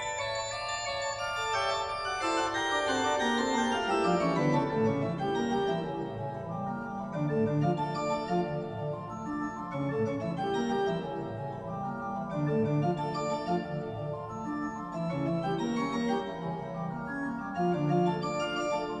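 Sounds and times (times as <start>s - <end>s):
organ music: 0.0s - 19.0s.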